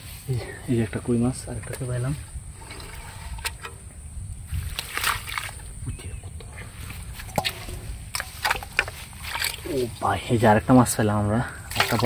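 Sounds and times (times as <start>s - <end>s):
hands squelching in mud and water: 4.5s - 5.8s, 6.9s - 10.1s, 11.6s - 12.0s.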